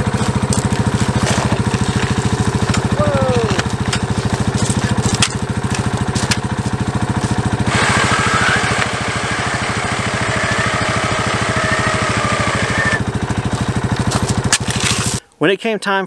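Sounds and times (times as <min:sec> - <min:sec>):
spade striking gravel: 0:00.0 - 0:08.9, 0:12.2 - 0:15.2
small gasoline engine puttering: 0:00.0 - 0:15.2.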